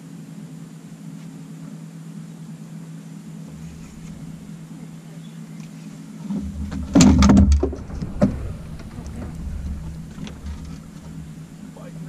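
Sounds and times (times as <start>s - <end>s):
steady low hum: 3.0s - 12.0s
landing net clattering and knocking: 6.3s - 11.9s.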